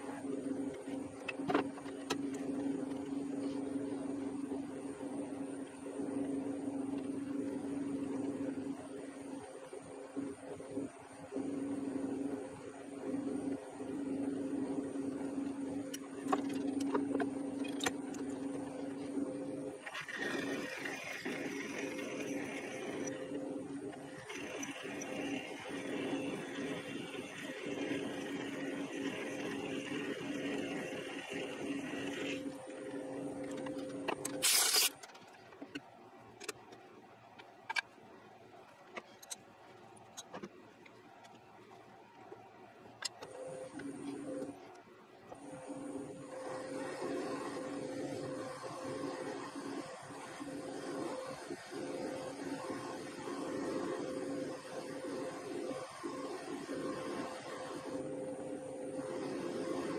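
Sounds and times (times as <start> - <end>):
metal lathe motor hum: 15.2 - 34.8.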